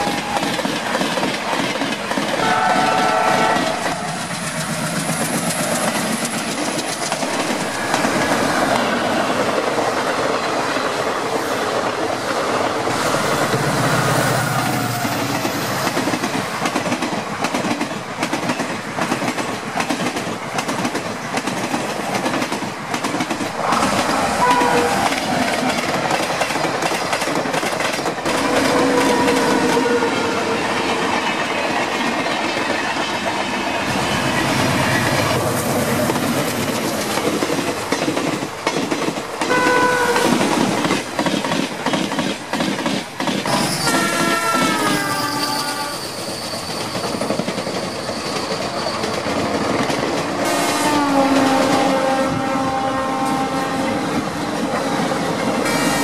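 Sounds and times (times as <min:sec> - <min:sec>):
train wheels clattering over rail joints: 0:00.0 - 0:11.1, 0:14.9 - 0:29.9, 0:30.8 - 0:45.5
locomotive horn blasts: 0:02.4 - 0:04.1, 0:24.4 - 0:25.1, 0:39.5 - 0:40.3, 0:43.7 - 0:46.0, 0:50.4 - 0:54.0, 0:55.6 - 0:56.0.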